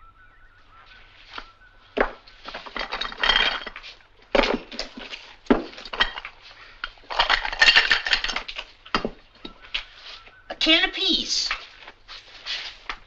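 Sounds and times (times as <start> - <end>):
oyster shells clicking and clattering: 2.0 - 9.9.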